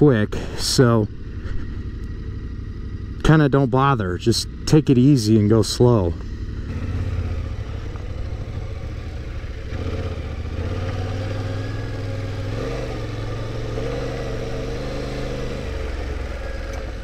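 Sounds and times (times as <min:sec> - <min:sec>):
motorcycle engine running: 0:00.0 - 0:17.0.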